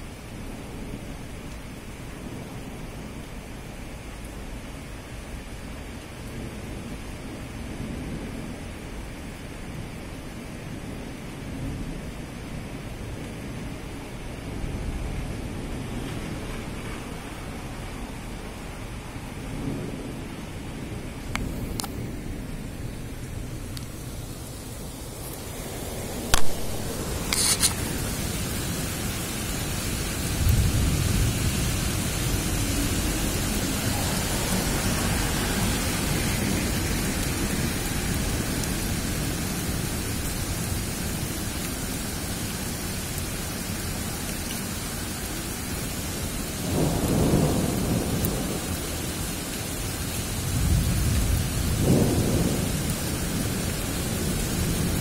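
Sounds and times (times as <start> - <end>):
rain hissing: 0.0 - 55.0
thunder rumbles: 10.6 - 55.0
sharp thunder cracks: 50.5 - 53.6.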